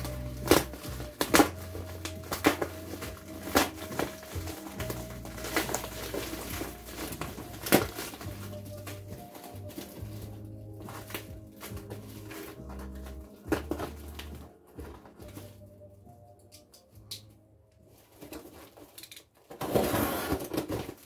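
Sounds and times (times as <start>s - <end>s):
plastic wrapping crinkling: 0.0s - 16.6s, 17.2s - 21.0s
background music with bass: 0.0s - 17.5s.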